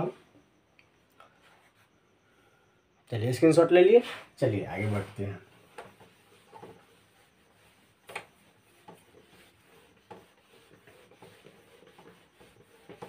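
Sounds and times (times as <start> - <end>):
eraser rubbing whiteboard: 4.1 - 13.0.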